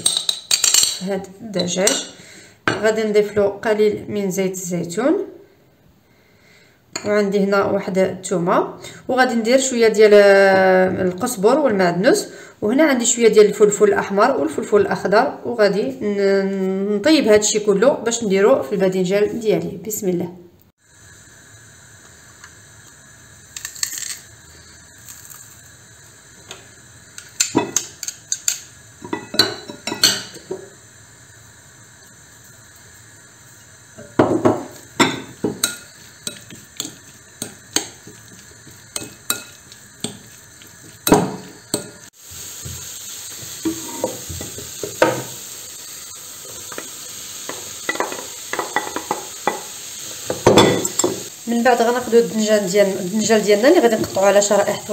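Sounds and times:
onions sizzling in a pan: 0.0 - 5.6, 20.7 - 54.9.

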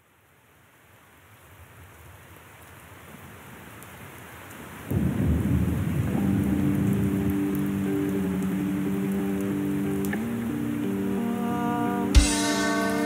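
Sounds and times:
steady rain: 0.0 - 13.0
loud low thunder rumble: 4.9 - 7.0
held low music notes: 7.6 - 13.0.

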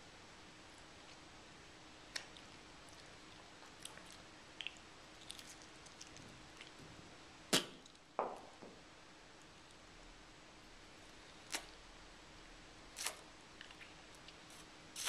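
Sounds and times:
lip smacks and mouth clicks: 2.1 - 6.8
lip pop: 7.5 - 8.4.

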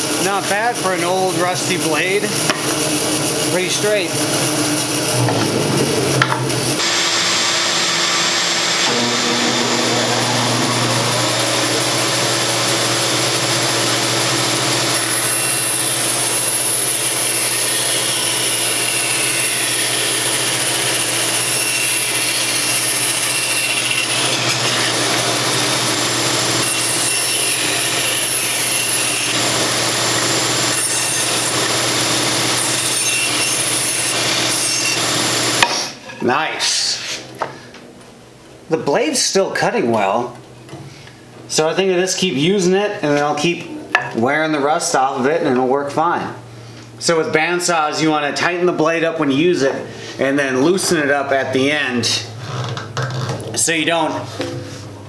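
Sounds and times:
bandsaw motor hum: 0.0 - 35.6
saw blade cutting wood: 0.0 - 36.0.

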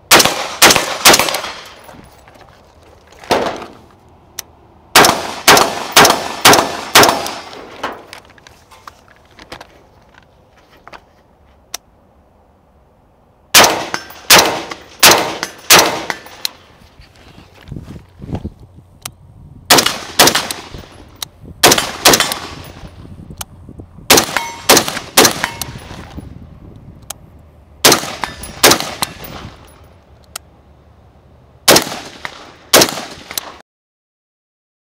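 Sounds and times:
rifle shots with echo: 0.1 - 1.8, 4.9 - 8.0, 13.5 - 16.4, 19.7 - 21.0, 21.6 - 22.8, 24.1 - 26.0, 27.8 - 29.6, 31.7 - 33.6
steel targets ringing: 24.3 - 24.8.

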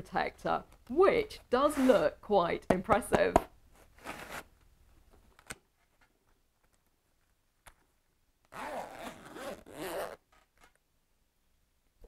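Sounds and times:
zip being pulled open: 8.5 - 10.4.

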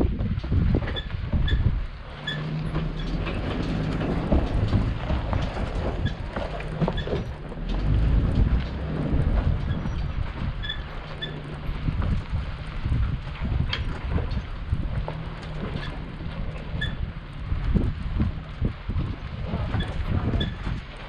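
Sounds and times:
body and suspension rattling: 0.0 - 21.0
truck engine running low: 0.0 - 21.0
short squeaks: 0.9 - 8.0, 9.5 - 12.7, 15.4 - 17.2, 19.7 - 20.7.

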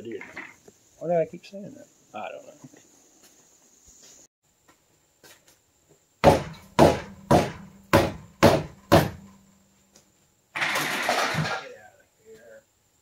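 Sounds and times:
hammer striking wheel: 6.2 - 9.4.

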